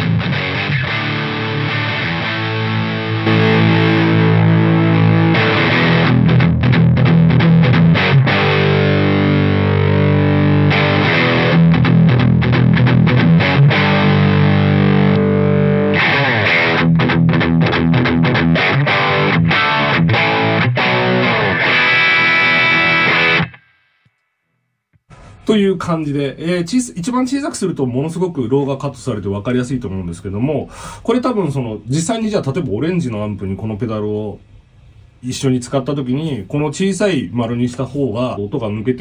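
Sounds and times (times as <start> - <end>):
overdriven electric guitar: 0.0 - 24.2.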